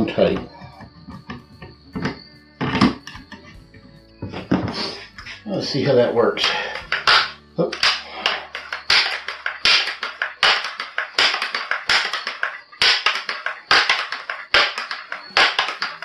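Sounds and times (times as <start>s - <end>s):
air rifle pump strokes: 6.4s - 16.0s.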